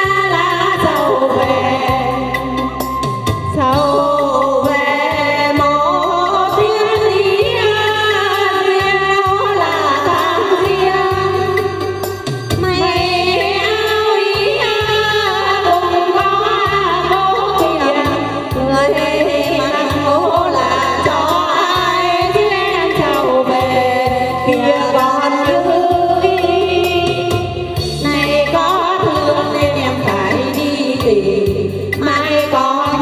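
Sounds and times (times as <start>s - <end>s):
women singing into microphones: 0.0s - 33.0s
low stepping bass: 10.7s - 15.3s, 16.3s - 30.3s.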